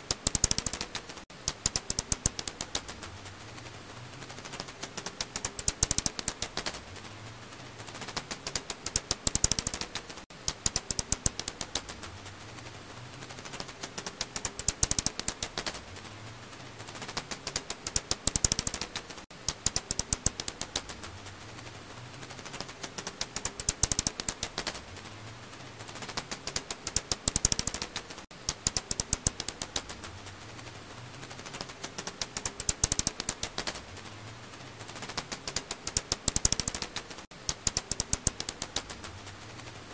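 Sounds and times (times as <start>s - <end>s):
bat echolocation clicks: 0.0s - 3.0s, 4.5s - 6.8s, 8.0s - 12.0s, 13.5s - 15.8s, 17.0s - 21.0s, 22.4s - 24.8s, 26.0s - 30.0s, 31.5s - 33.8s, 35.0s - 39.0s
low hiss: 0.0s - 39.9s.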